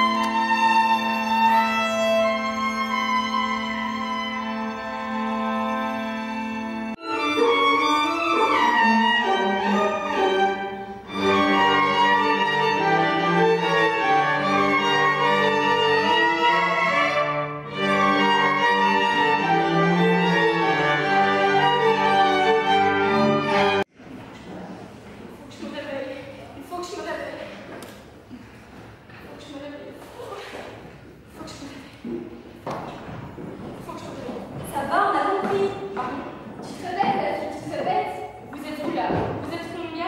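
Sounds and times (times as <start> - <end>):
string ensemble playing: 0.0 - 23.9.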